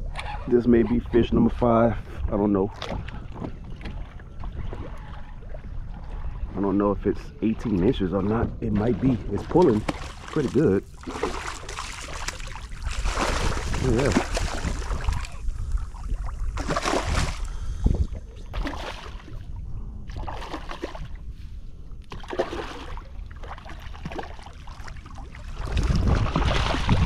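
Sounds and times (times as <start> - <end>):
wind rumbling on microphone: 0.0 - 23.4, 24.9 - 27.0
fish splashing at surface: 9.8 - 15.4, 16.6 - 17.5.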